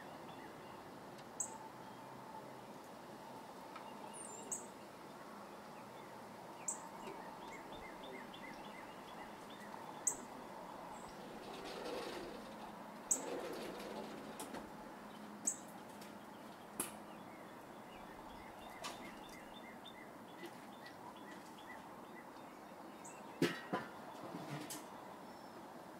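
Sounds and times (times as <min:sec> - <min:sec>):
bird chirping: 0:00.0 - 0:02.1, 0:03.8 - 0:04.8, 0:06.0 - 0:11.3, 0:15.1 - 0:23.4.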